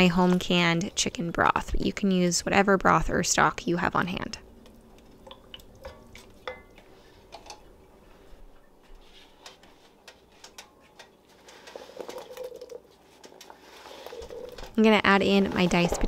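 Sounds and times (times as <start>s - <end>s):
wooden spoon stirring broth: 4.7s - 16.0s.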